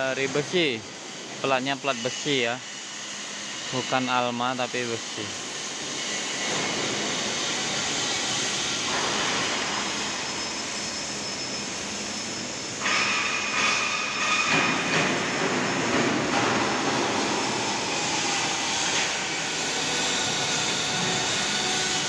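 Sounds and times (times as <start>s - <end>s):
machinery noise echoing: 3.8s - 22.0s
thin high whine: 7.6s - 15.0s.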